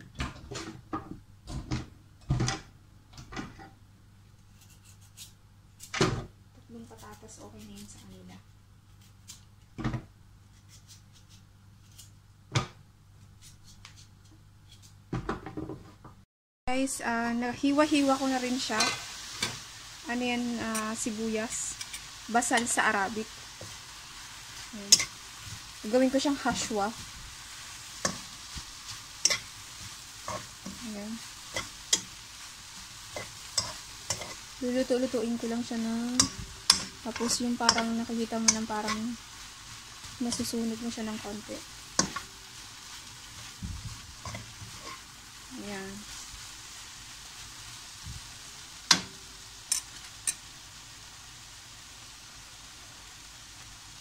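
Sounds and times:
onions sizzling in a pan: 4.5s - 12.8s, 16.7s - 54.0s
utensil scraping and tapping pan: 33.2s - 34.4s, 36.1s - 39.2s.

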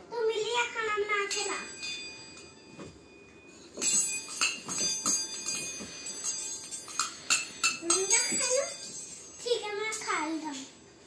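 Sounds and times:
metal spoon clinking in bowl: 3.8s - 10.3s.

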